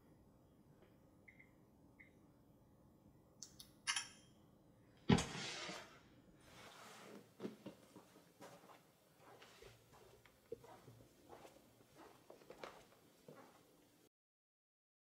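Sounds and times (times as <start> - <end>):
footsteps on carpet: 7.4 - 13.7.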